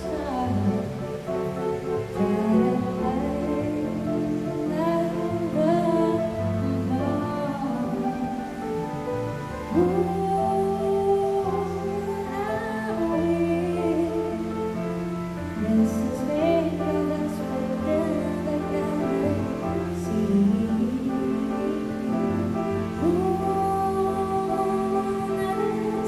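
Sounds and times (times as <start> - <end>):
woman singing into a microphone: 0.0 - 9.0, 9.7 - 26.0
grand piano: 0.0 - 26.0.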